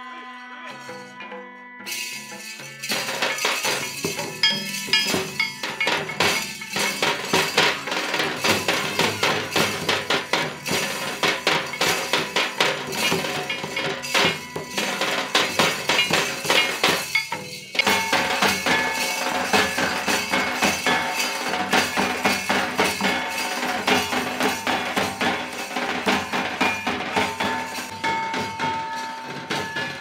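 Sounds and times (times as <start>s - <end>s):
folk drum ensemble: 0.7s - 30.0s
sharp clinking strokes: 1.9s - 30.0s.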